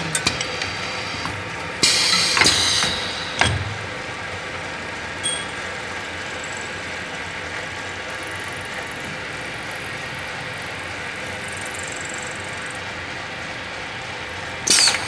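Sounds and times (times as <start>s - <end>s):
machine motor hum: 0.0s - 15.0s
loud hiss: 1.8s - 4.0s.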